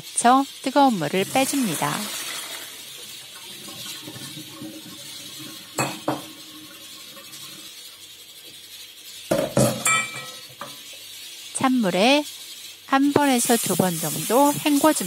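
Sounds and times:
glass and steel clinking: 0:05.7 - 0:06.4, 0:09.4 - 0:10.8.

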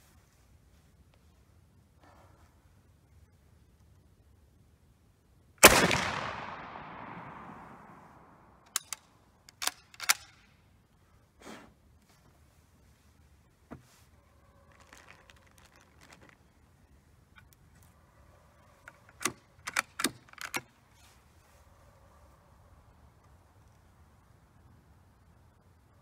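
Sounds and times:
rifle shot with echo: 0:05.6 - 0:08.6
rifle bolt clicks: 0:08.6 - 0:10.5, 0:18.8 - 0:20.7
clicks and rattles: 0:08.7 - 0:10.4, 0:18.8 - 0:20.8.

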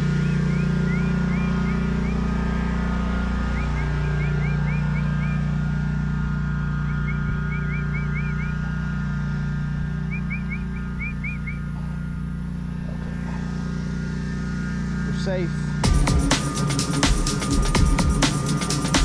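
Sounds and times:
bird chirping: 0:00.0 - 0:02.4, 0:03.5 - 0:05.5, 0:06.8 - 0:08.7, 0:10.0 - 0:11.9
small gas engine idling: 0:00.0 - 0:19.0.

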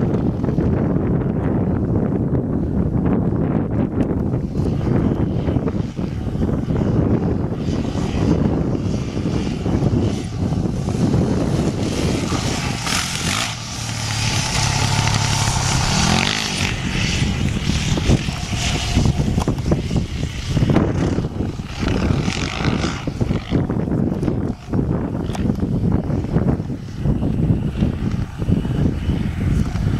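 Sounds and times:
dirt bike engine revving: 0:09.6 - 0:25.5.

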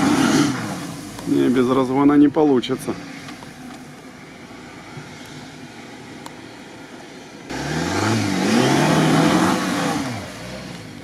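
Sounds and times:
car engine revving: 0:00.0 - 0:01.7, 0:04.2 - 0:11.0
tyres churning sand: 0:07.5 - 0:11.0.

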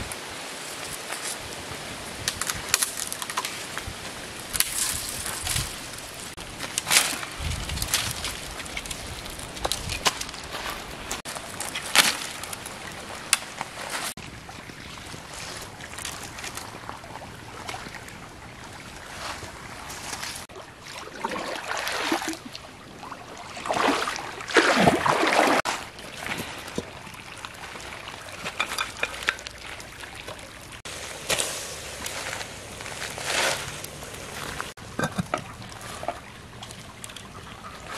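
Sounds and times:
rushing stream: 0:00.0 - 0:37.9
water splashing and pouring: 0:11.5 - 0:37.9.

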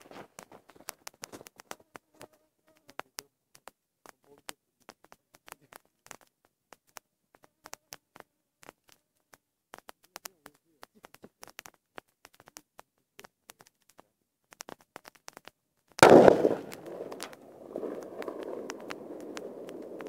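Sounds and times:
campfire crackling and popping: 0:00.0 - 0:20.0.

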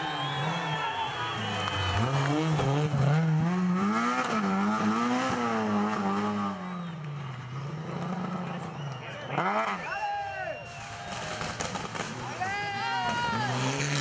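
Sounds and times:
car engine revving hard: 0:00.2 - 0:06.7, 0:13.3 - 0:14.0.

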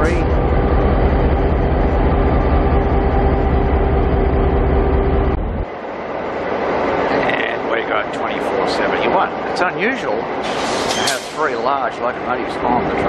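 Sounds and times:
diesel locomotive idling: 0:00.0 - 0:13.0
hiss: 0:10.4 - 0:11.6.

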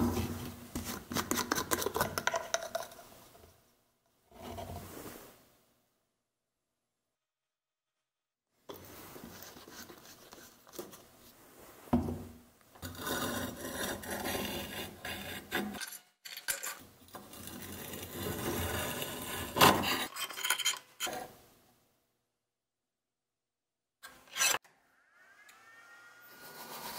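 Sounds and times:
steel scraping on flat surface: 0:12.8 - 0:16.0, 0:17.2 - 0:21.3, 0:24.1 - 0:26.9.

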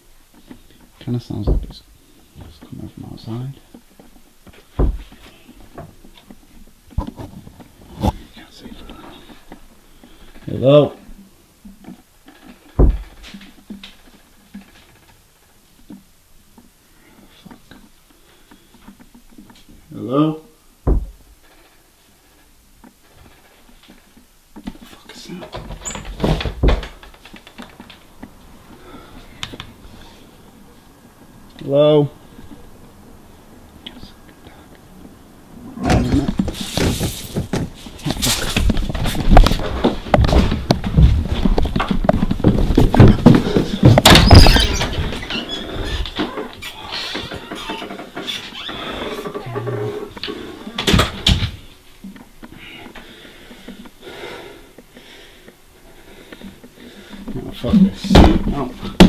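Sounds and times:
rapid irregular banging: 0:00.0 - 0:19.9, 0:20.7 - 0:59.0
rustling and clatter: 0:00.0 - 0:59.0
heavy thump: 0:01.4 - 0:02.6, 0:04.7 - 0:05.9, 0:12.8 - 0:13.4, 0:20.8 - 0:21.4, 0:25.6 - 0:27.0, 0:58.0 - 0:59.0
light knocks and taps: 0:03.7 - 0:06.4.

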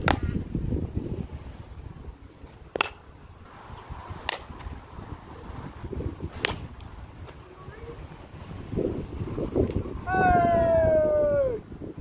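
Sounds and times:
baseball bat hitting ball: 0:00.0 - 0:00.4, 0:02.7 - 0:03.0, 0:04.2 - 0:04.7, 0:06.3 - 0:06.8
wind rumble on microphone: 0:00.0 - 0:12.0.

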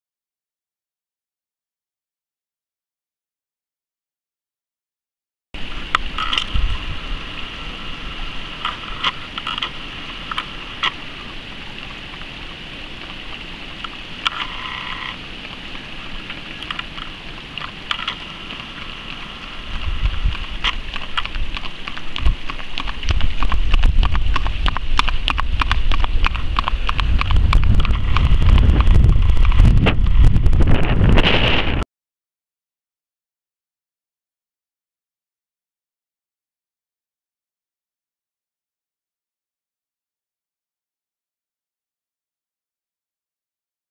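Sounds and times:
wind buffeting microphone: 0:05.6 - 0:11.2, 0:15.8 - 0:31.8
steady high hum: 0:05.6 - 0:31.8.

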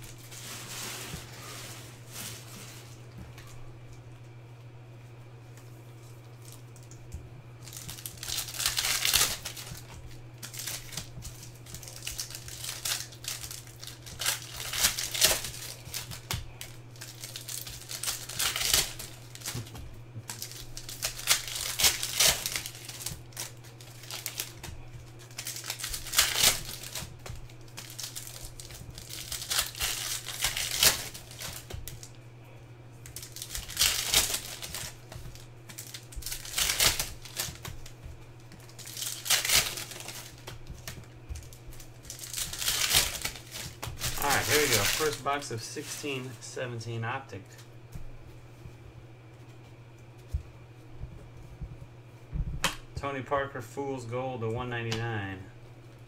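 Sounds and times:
foil wrappers tearing and crinkling: 0:00.0 - 0:03.7, 0:07.6 - 0:32.2, 0:33.0 - 0:47.7.

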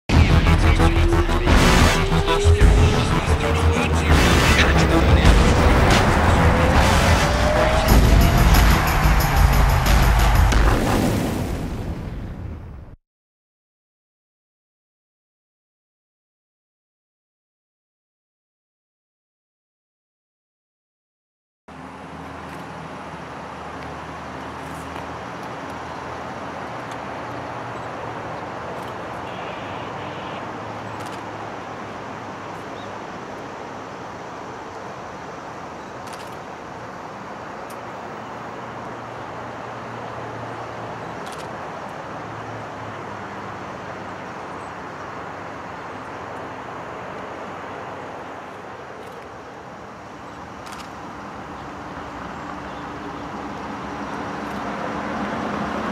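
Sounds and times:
diesel engine hum: 0:00.1 - 0:10.9, 0:21.7 - 0:55.9.

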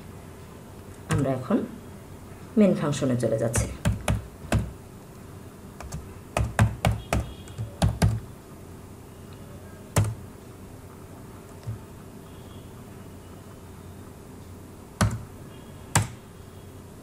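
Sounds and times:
computer keyboard keystrokes: 0:03.6 - 0:04.8, 0:05.8 - 0:08.2, 0:10.0 - 0:10.2, 0:11.5 - 0:11.8, 0:15.0 - 0:15.2, 0:15.9 - 0:16.2.

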